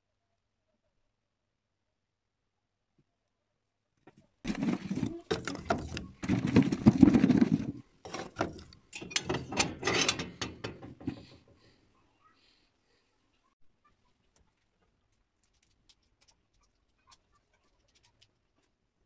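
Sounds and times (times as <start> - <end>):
iron stove lid clattering: 4.5 - 11.3
wood shifting in stove: 4.5 - 11.7.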